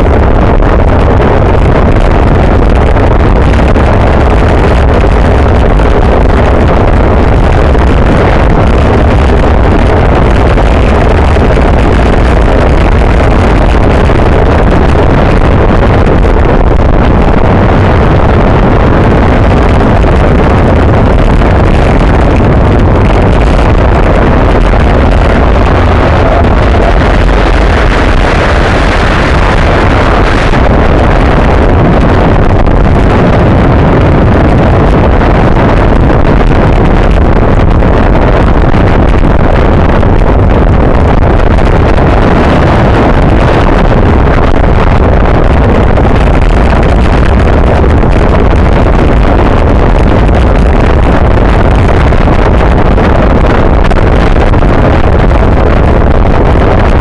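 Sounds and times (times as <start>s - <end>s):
wind roar on microphone: 0.0s - 57.0s
tyre and road hum: 19.5s - 35.1s.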